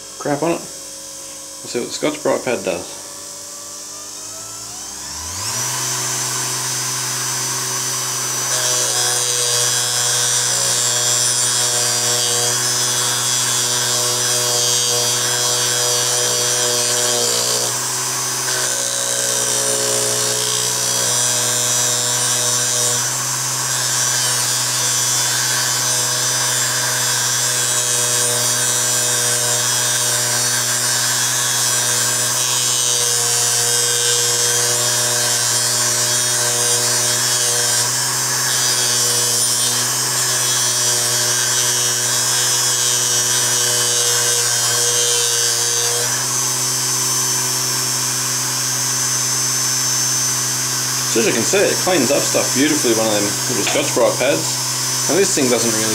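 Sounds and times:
bench polisher motor humming: 0.0 - 55.9
abrasive wheel scrubbing metal: 51.0 - 55.9.

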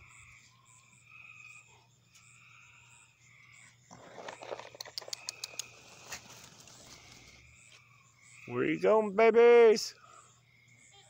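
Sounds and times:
frogs and insects chirping: 0.0 - 11.0
close rustling: 3.9 - 7.4
sharp clicks: 4.6 - 5.8.

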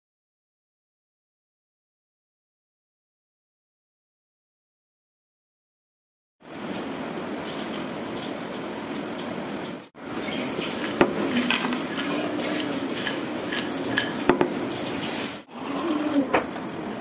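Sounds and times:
potato chips shaken in a bowl: 10.4 - 15.5.

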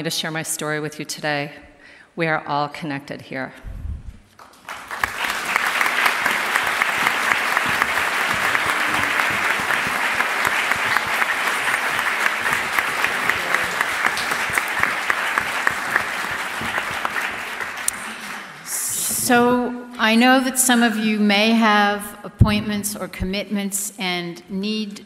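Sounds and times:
audience applauding: 4.4 - 18.7.

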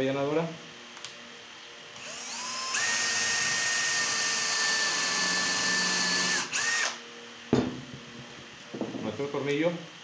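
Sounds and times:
cordless drill motor whine: 2.0 - 7.0.

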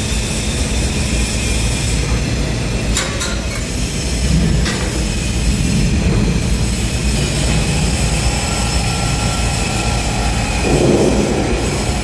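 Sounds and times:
machinery low rumble: 3.6 - 12.0.

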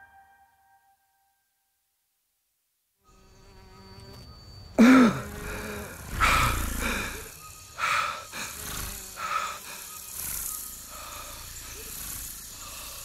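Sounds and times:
faint ambient drone: 3.1 - 13.0.

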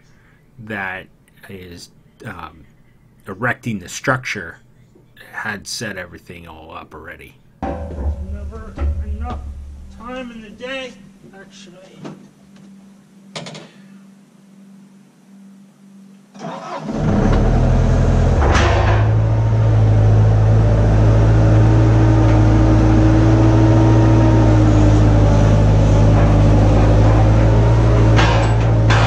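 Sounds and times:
engine cranking and starting: 16.4 - 20.6
engine running loud: 16.9 - 29.0.

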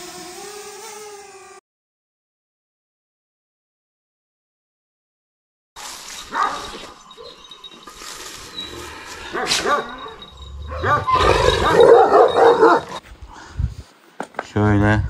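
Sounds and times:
dog yelping and barking: 6.3 - 7.5, 9.3 - 13.0.

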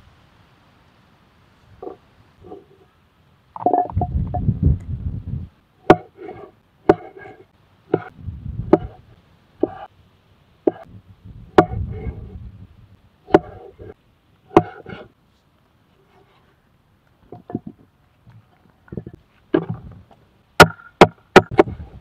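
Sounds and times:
cleaver chopping on wooden board: 5.9 - 6.2, 6.9 - 7.2, 11.6 - 11.8, 13.3 - 13.6, 14.5 - 15.0.

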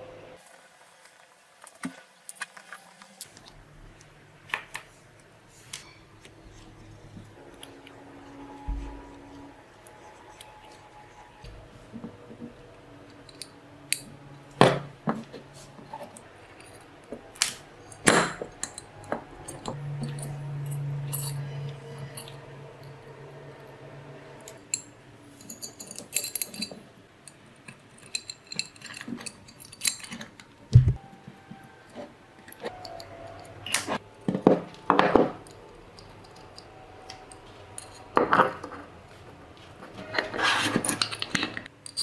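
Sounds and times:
low steady hum: 3.2 - 42.0
small metal parts clinking: 12.0 - 22.9, 24.4 - 30.6, 34.8 - 38.8, 40.0 - 42.0.

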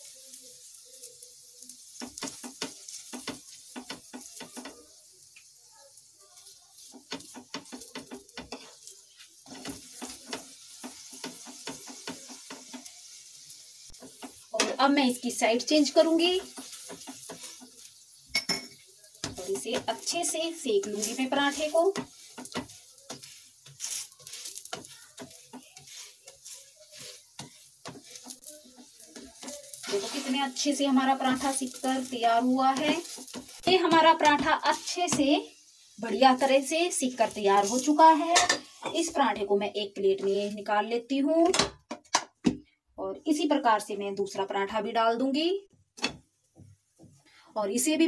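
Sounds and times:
oil sizzling on a hot pan: 0.0 - 48.0
utensil clicking and scraping pan: 0.1 - 5.5, 6.4 - 15.0, 15.6 - 39.2.

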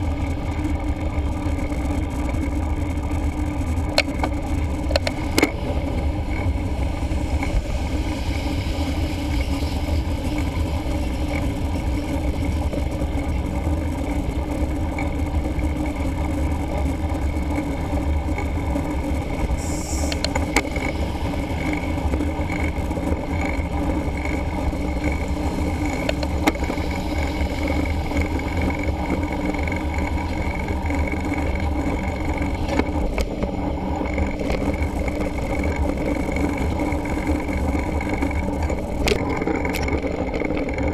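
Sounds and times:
faint tyre hum: 0.0 - 40.9
road traffic: 0.0 - 40.9
wind rumble: 0.0 - 40.9.

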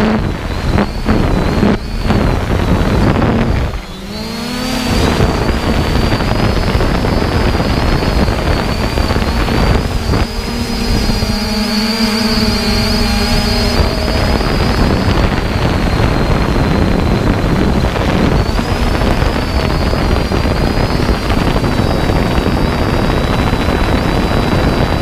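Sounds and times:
drone motors whining: 0.0 - 25.0
wind rushing across microphone: 0.0 - 25.0.

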